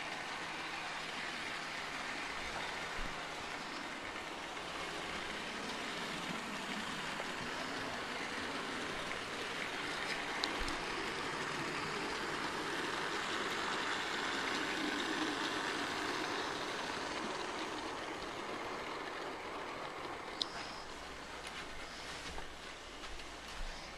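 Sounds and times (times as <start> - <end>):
model train whirring on rails: 0.0 - 23.9
faint clicks: 19.8 - 21.6.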